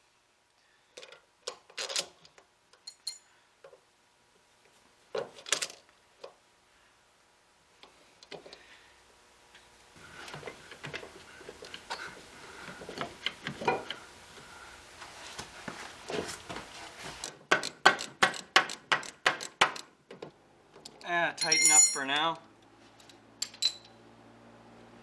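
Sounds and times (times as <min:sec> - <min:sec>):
metal washers clinking: 0:01.0 - 0:03.3, 0:05.4 - 0:05.9, 0:20.8 - 0:22.3, 0:23.0 - 0:24.0.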